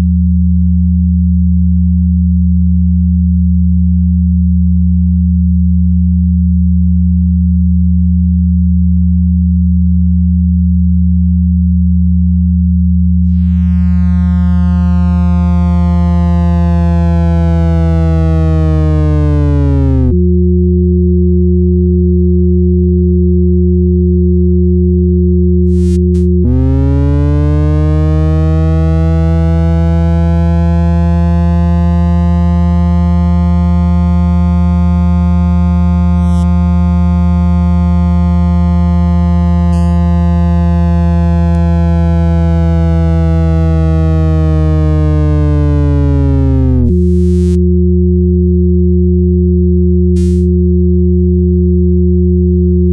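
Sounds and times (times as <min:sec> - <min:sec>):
low sine drone: 0:00.0 - 0:52.9
buzzy tone bending in pitch: 0:13.2 - 0:20.2, 0:25.7 - 0:50.5
pure tones: 0:13.3 - 0:20.2, 0:25.7 - 0:50.5
very high steady tone: 0:25.7 - 0:27.5, 0:34.1 - 0:43.2, 0:45.1 - 0:50.5.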